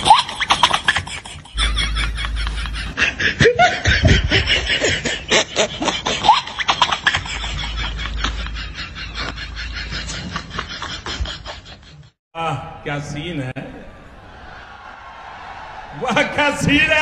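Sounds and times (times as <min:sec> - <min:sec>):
people laughing and snickering: 0:00.0 - 0:12.2.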